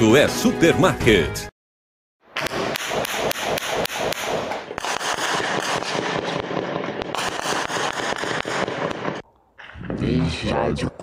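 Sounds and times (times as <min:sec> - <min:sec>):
gunfire exchange: 0:02.4 - 0:09.8.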